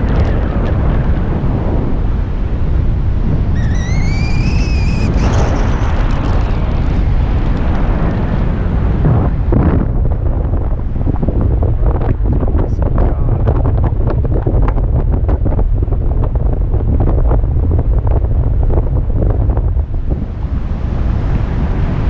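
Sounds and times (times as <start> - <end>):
wind buffeting microphone: 0.0 - 22.0
high whistle-like tone: 3.5 - 5.7.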